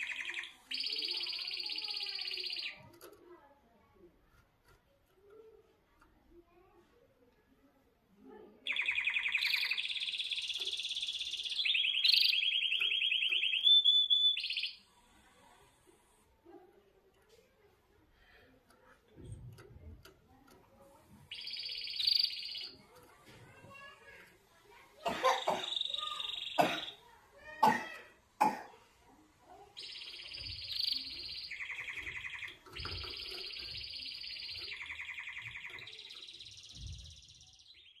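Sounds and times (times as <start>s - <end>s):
canary singing trills: 0.0s - 3.2s, 8.6s - 15.6s, 19.2s - 27.6s, 29.1s - 38.0s.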